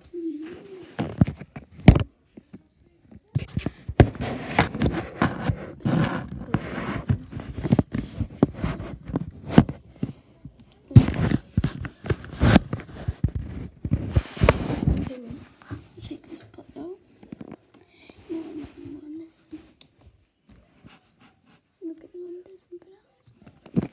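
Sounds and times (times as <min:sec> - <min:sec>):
tablet handling knocks and rubbing: 0:00.9 - 0:16.1, 0:23.4 - 0:23.9.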